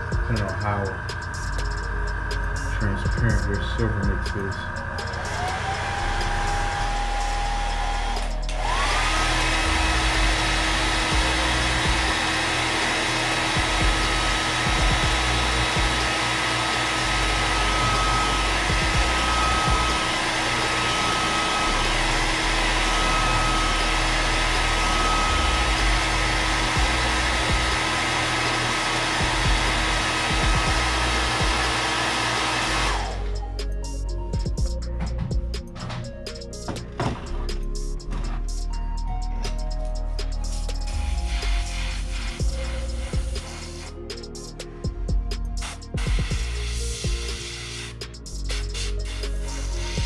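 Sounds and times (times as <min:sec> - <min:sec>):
small electric motor whirring: 0:00.0 - 0:34.8.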